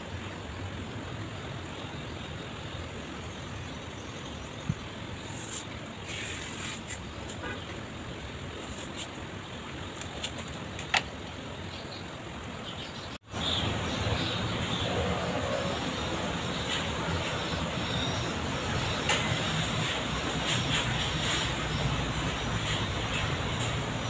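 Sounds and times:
steady rushing noise: 0.0 - 24.0.

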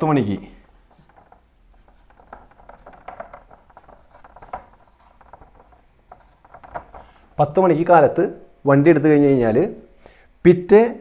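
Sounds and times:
marker scratching on whiteboard: 0.6 - 7.4, 9.4 - 9.9.

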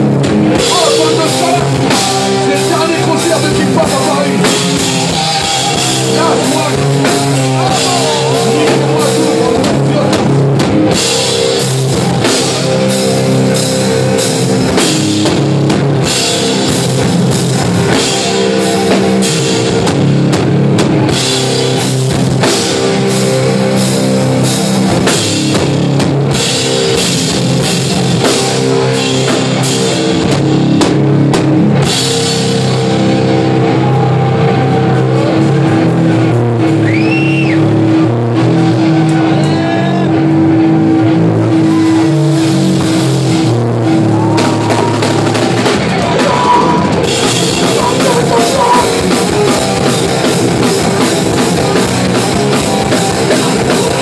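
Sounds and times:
fast drum beats: 0.0 - 39.6, 41.3 - 54.0
bass chugging: 0.0 - 54.0
distorted electric guitars: 0.0 - 54.0.

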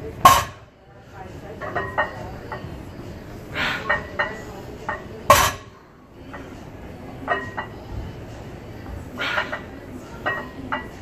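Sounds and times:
barbell clanging on floor: 3.9 - 5.7.

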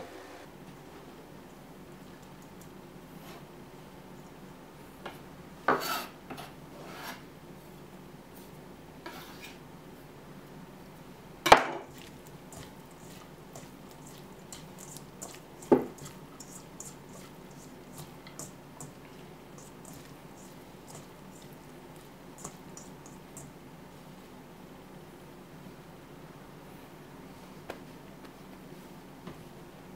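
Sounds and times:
hands mixing food in a bowl: 11.7 - 24.1.

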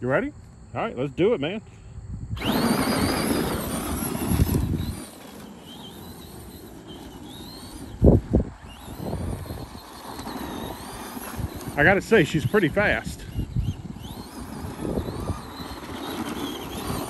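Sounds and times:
electric motor whine: 2.4 - 17.0
tyres spraying gravel: 2.4 - 17.0.

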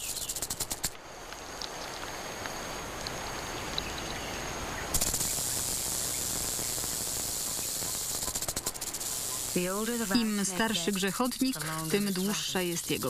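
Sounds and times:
rattlesnake tail rattle buzzing: 0.0 - 1.0, 4.9 - 13.0.

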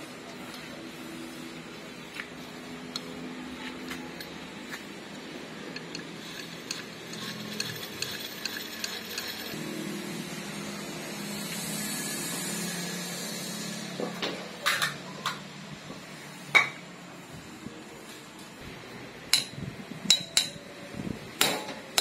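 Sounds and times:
machine hum: 0.8 - 14.6.

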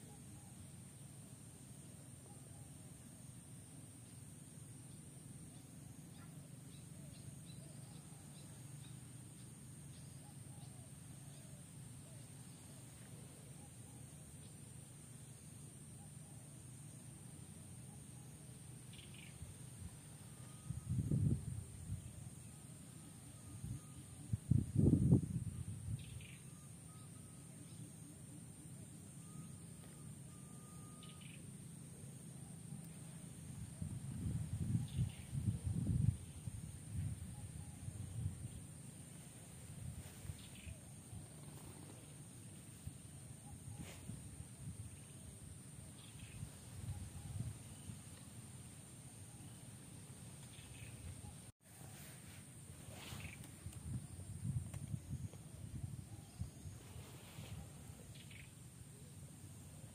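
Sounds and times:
faint birds chirping: 0.0 - 59.9
steady high hiss: 0.0 - 59.9
steady low hum: 0.0 - 59.9
distant animal chirps and calls: 17.8 - 21.0, 29.1 - 31.7, 57.9 - 59.1.

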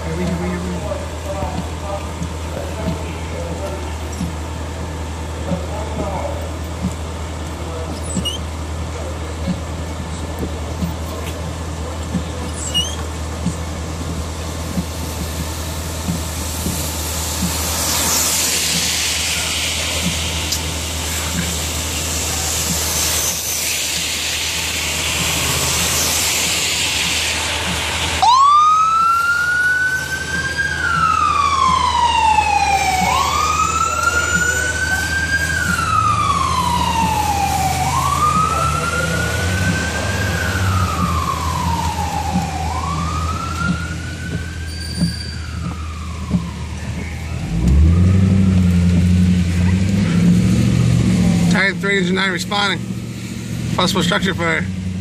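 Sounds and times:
engine hum and hiss: 0.0 - 55.0
fire engine siren wailing: 15.3 - 52.8.

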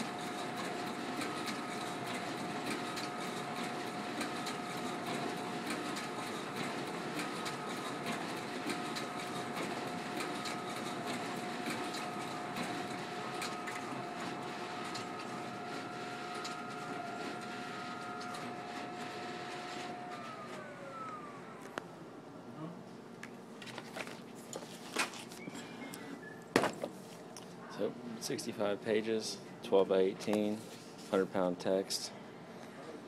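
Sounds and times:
printer running: 0.0 - 22.0.

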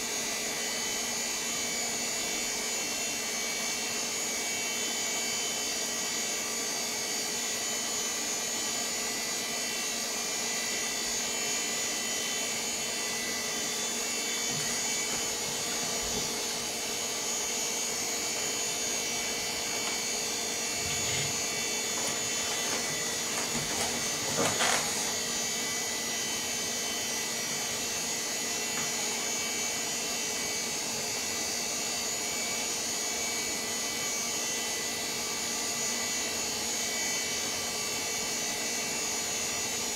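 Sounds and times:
computer fans and disk whirring: 0.0 - 39.9
whining tones: 10.6 - 29.7.

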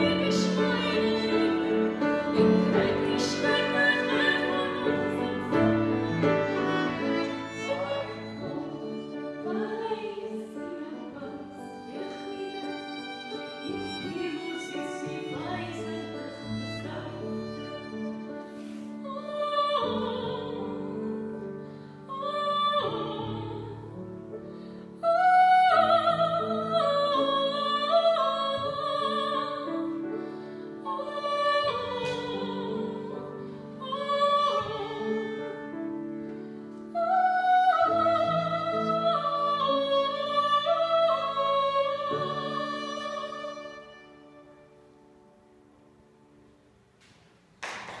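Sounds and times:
woman singing with vibrato: 0.0 - 17.9, 36.9 - 43.9
fiddle: 0.0 - 21.3, 24.5 - 45.1
piano: 0.0 - 48.0.

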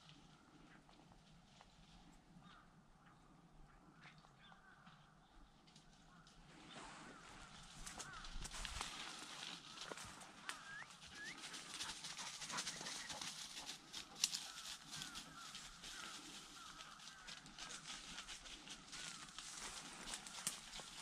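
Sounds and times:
dry grass and twigs rustling: 0.0 - 3.2, 3.8 - 21.0
footsteps: 6.5 - 21.0.

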